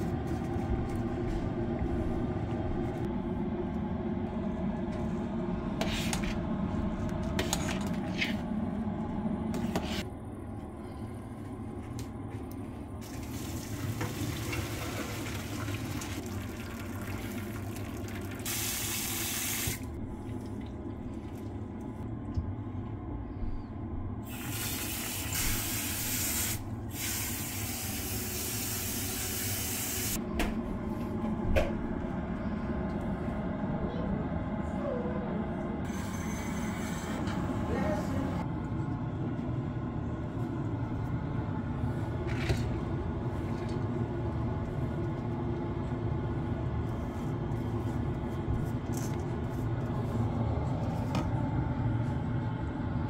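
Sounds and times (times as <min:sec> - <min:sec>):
steady low hum: 0:00.0 - 0:13.8, 0:19.8 - 0:28.2, 0:30.2 - 0:53.0
tap water running into a pot: 0:13.0 - 0:19.8.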